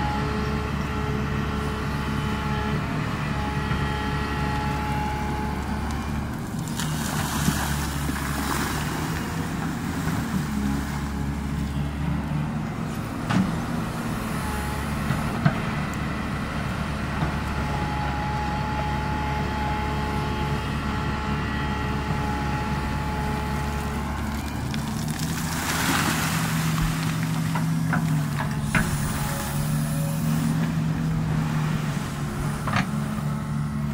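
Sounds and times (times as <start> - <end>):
excavator diesel engine running: 0.0 - 33.9
churning water: 4.8 - 11.8, 19.0 - 33.9
digger bucket dumping gravel: 6.3 - 11.8, 22.1 - 33.9.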